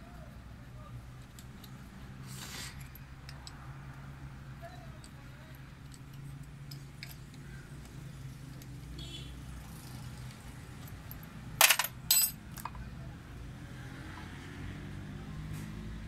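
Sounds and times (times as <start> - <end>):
ringing metal clinks: 10.8 - 12.8.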